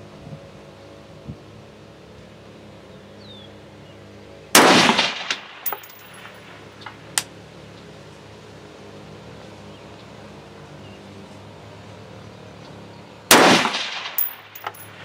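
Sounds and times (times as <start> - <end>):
rifle shot: 4.6 - 6.3, 13.3 - 14.8.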